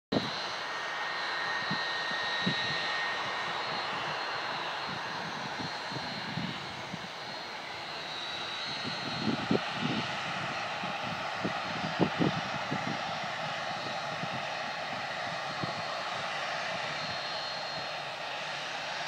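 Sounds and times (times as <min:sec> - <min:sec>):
jet engines whining: 0:00.1 - 0:19.0
wind buffeting microphone: 0:04.8 - 0:07.2, 0:08.7 - 0:17.9.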